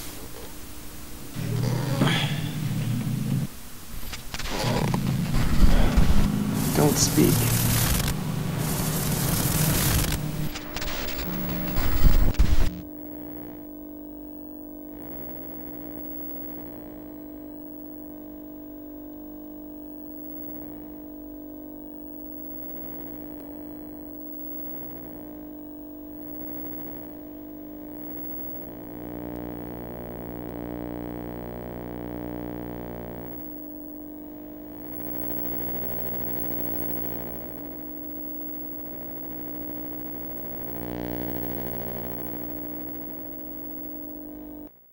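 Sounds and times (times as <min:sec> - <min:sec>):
electronic drone: 0:01.3 - 0:13.6, 0:34.7 - 0:44.8.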